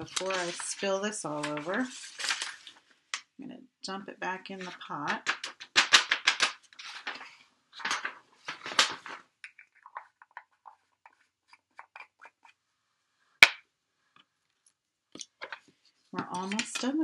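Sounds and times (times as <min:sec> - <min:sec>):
paper rustling and powder pouring: 0:00.0 - 0:02.8, 0:06.8 - 0:09.2.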